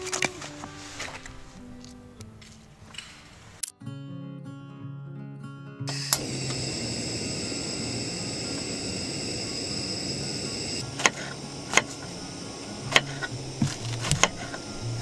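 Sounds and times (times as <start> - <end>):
gas stove igniter click: 5.9 - 14.8
gas stove burning hiss: 5.9 - 15.0
knife cutting on wooden board: 12.9 - 14.6.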